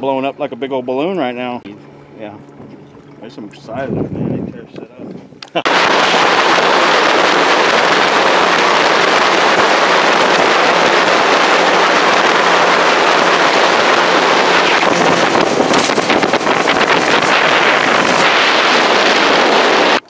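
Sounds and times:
faint boat engine hum: 0.0 - 20.0
rush of wind and water: 1.6 - 20.0.

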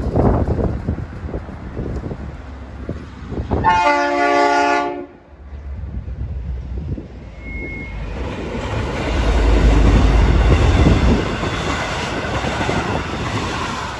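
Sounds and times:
locomotive engine passing: 5.0 - 13.9
train carriages rolling: 5.4 - 13.9.

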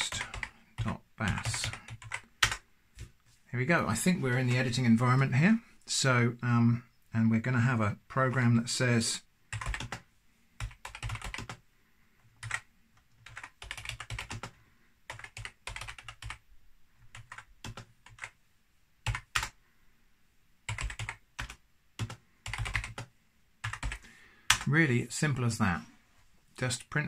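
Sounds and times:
keyboard typing: 0.0 - 3.1, 9.5 - 10.0, 10.6 - 11.6, 12.3 - 16.4, 17.1 - 18.4, 19.0 - 19.6, 20.7 - 24.7.

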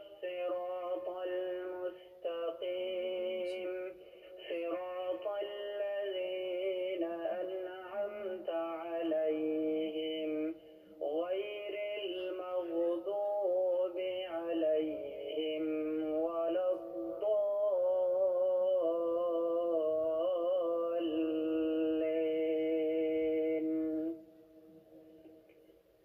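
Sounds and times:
vocal melody with long held notes: 0.0 - 25.7.

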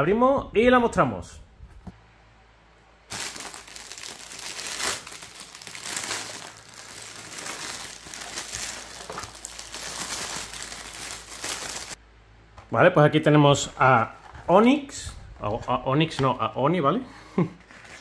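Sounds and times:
plastic bag crinkling: 3.1 - 12.0.

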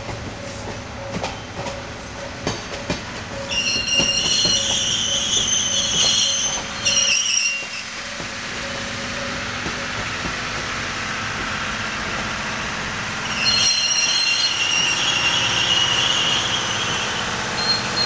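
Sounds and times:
train rumbling past: 0.0 - 18.0
high-pitched wheel squeal: 3.4 - 7.9, 13.2 - 18.0.

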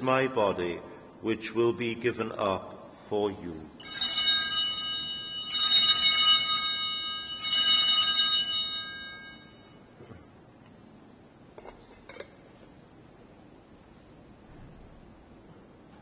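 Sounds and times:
small altar bells ringing: 3.8 - 9.9.

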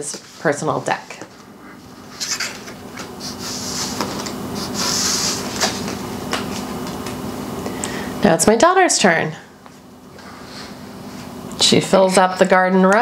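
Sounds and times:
faint steady hum: 0.0 - 13.0
playing cards sliding: 2.0 - 6.7.

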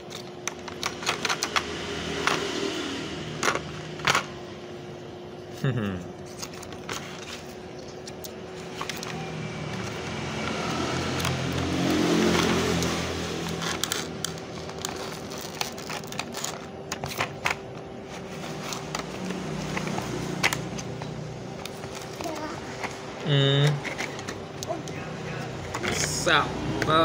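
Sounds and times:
passing motor vehicle: 0.7 - 5.0, 8.7 - 15.2, 18.2 - 22.0, 24.3 - 27.0
plastic packaging crackling: 6.2 - 22.5.

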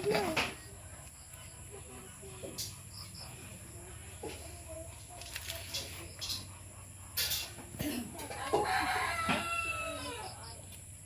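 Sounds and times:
rooster crowing: 8.4 - 10.5.

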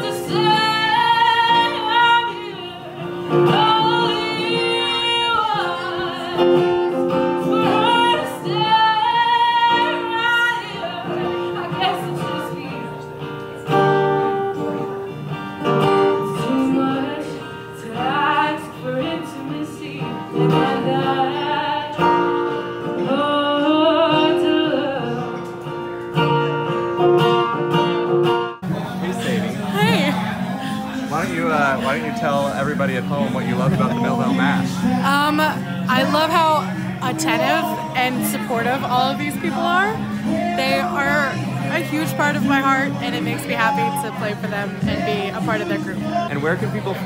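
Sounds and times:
woman singing: 0.0 - 13.8, 15.9 - 25.5, 29.7 - 30.3, 34.8 - 46.2
acoustic guitar: 0.0 - 47.0.

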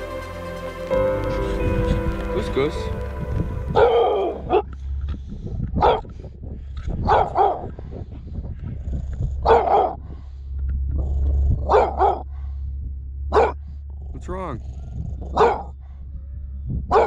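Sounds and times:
low vehicle rumble: 0.0 - 17.0
dog barking: 5.8 - 6.1, 7.0 - 7.8, 9.4 - 10.0, 11.6 - 12.3, 13.3 - 13.6, 15.2 - 17.0.

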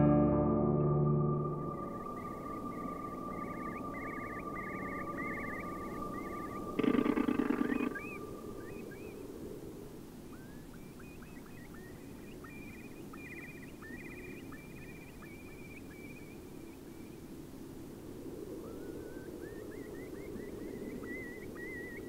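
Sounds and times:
faint steady hiss: 1.2 - 22.0
loud animal call: 1.8 - 8.8.

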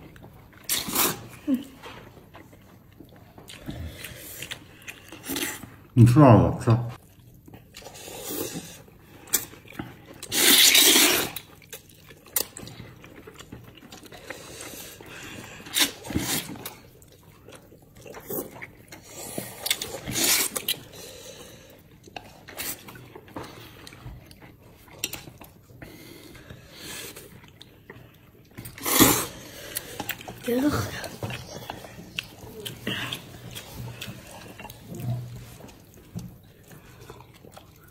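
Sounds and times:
wet noodle slurping: 0.6 - 1.4, 7.1 - 12.0, 13.9 - 21.2, 26.2 - 37.9.

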